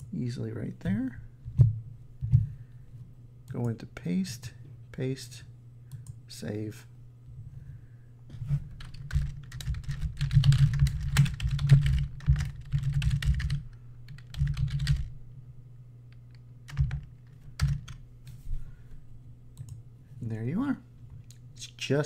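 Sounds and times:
typing on computer keyboard: 8.8s - 15.1s, 16.7s - 18.0s.

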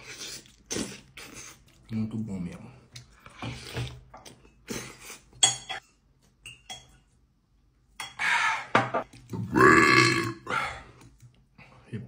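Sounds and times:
person belching: 9.4s - 10.6s.

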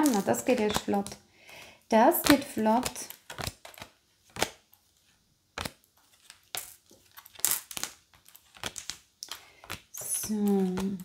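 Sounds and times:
cards rustling and snapping: 2.2s - 4.8s, 5.6s - 11.0s.

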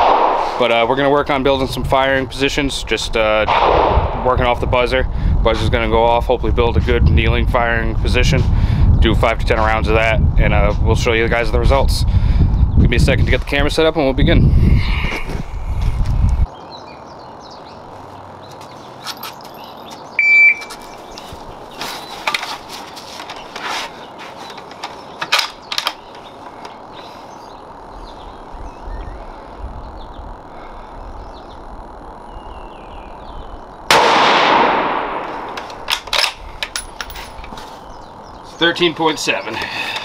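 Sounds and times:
rifle shot with echo: 0.0s - 0.6s, 3.5s - 4.3s, 33.9s - 35.5s
shot timer beep: 20.2s - 20.7s
rifle handling clicks and knocks: 20.6s - 23.7s, 24.4s - 26.8s, 35.2s - 37.7s.

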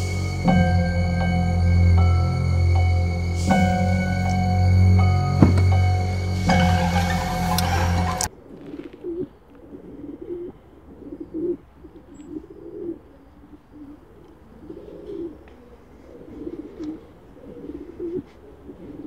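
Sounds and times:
pigeons cooing: 6.9s - 19.0s.

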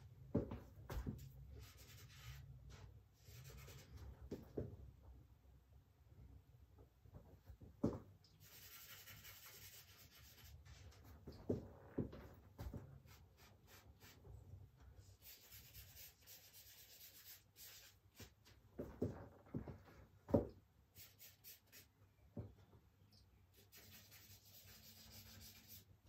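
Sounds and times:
charcoal scratching on paper: 1.6s - 2.5s, 8.4s - 11.1s, 15.0s - 18.4s, 21.0s - 21.9s, 23.6s - 25.9s.

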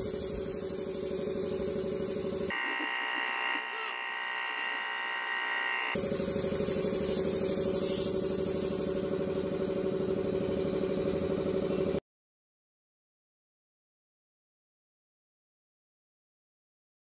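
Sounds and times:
pulsing machine hum: 0.0s - 12.0s.

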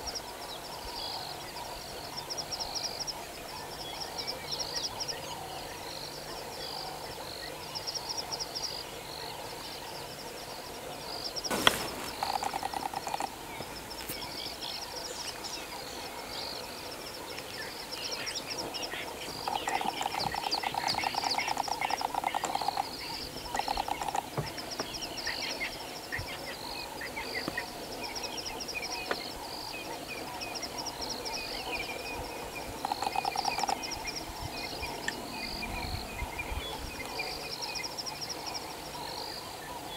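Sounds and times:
high insect trills: 10.2s - 39.5s
bird chirps: 11.4s - 16.7s, 17.3s - 29.3s, 30.2s - 38.3s.

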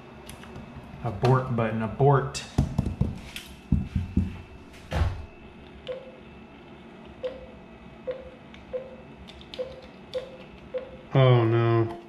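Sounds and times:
short keypad beeps: 5.9s - 6.2s, 7.2s - 7.5s, 8.1s - 9.0s, 9.6s - 11.0s.

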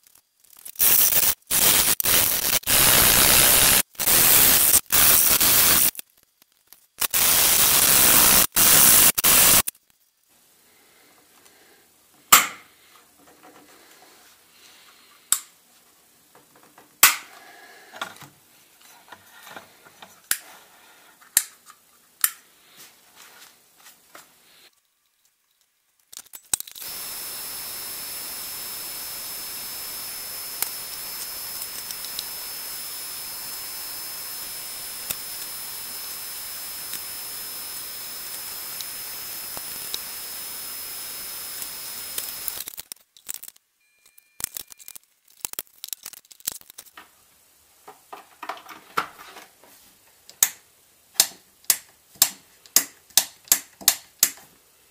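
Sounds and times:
fume extractor fan hiss: 7.0s - 9.6s, 26.8s - 42.6s.

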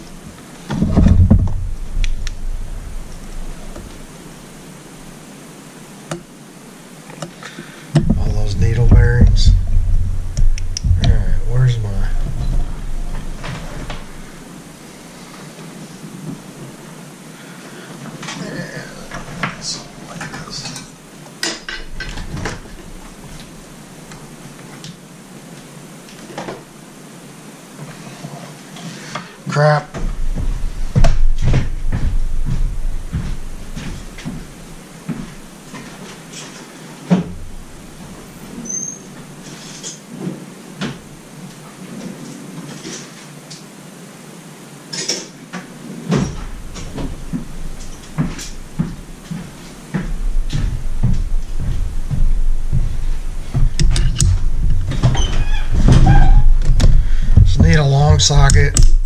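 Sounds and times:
low rumble: 0.0s - 5.2s, 8.0s - 14.7s, 30.1s - 34.8s
footsteps: 0.0s - 5.3s, 8.0s - 15.7s, 21.7s - 24.6s, 29.9s - 38.6s, 46.2s - 59.0s
low hum: 0.0s - 7.0s, 8.0s - 15.4s, 29.9s - 35.7s, 46.4s - 59.0s.

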